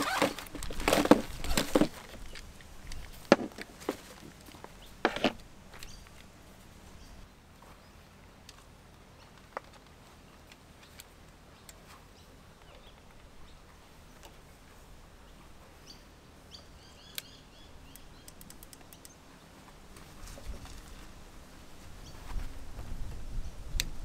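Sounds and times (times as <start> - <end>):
bird chirping: 5.7 - 6.2, 10.2 - 14.4, 15.2 - 19.6
light clicks and ticks: 17.9 - 19.2.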